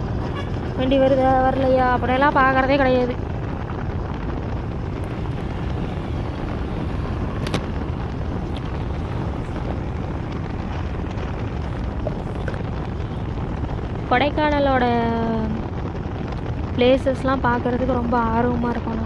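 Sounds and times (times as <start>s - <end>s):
vehicle road noise: 0.0s - 19.0s
wind rumble on microphone: 0.0s - 19.0s.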